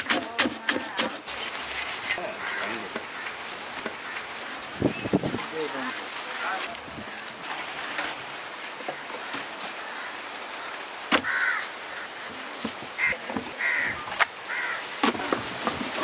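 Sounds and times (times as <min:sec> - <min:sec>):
cleaver striking wooden board: 0:00.0 - 0:01.3
crows cawing: 0:02.3 - 0:04.6, 0:08.8 - 0:12.2, 0:13.0 - 0:15.0.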